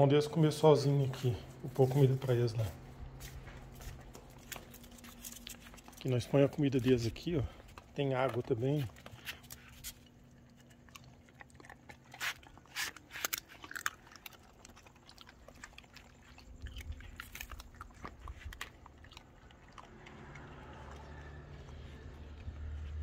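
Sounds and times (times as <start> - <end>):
dogs crunching and chewing: 0.0 - 23.0
low rumble: 19.8 - 23.0.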